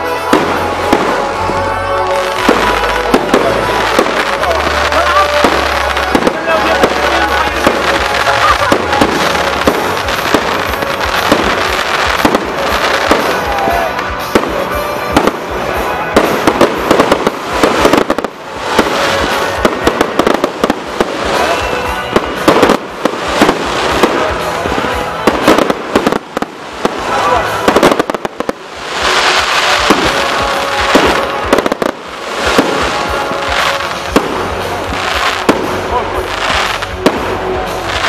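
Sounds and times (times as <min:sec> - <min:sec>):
fireworks bursting and crackling: 0:00.0 - 0:38.0.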